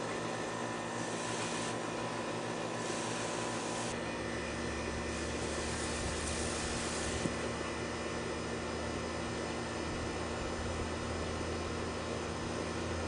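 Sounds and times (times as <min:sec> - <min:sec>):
steady hum: 0:00.0 - 0:13.0
garden hose spraying water: 0:00.9 - 0:04.0, 0:05.0 - 0:07.5.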